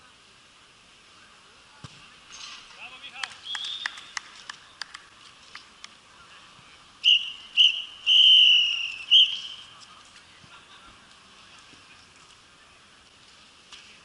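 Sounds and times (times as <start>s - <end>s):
referee's whistle blasts: 7.0s - 9.7s.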